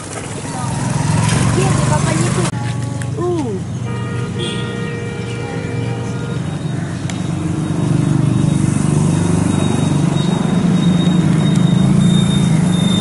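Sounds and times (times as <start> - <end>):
vehicle engine running: 0.0 - 3.8.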